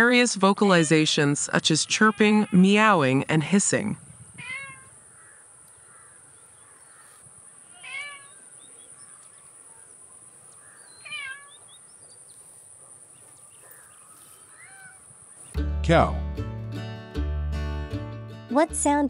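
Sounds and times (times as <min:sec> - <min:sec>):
kitten mewing: 0:04.4 - 0:04.9, 0:11.0 - 0:11.5, 0:14.6 - 0:15.0.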